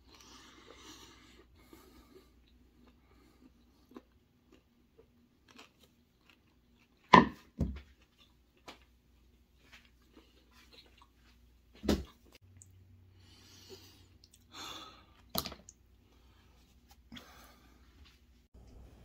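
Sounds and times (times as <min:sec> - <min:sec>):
faint chewing: 0:00.0 - 0:07.1, 0:07.9 - 0:11.5.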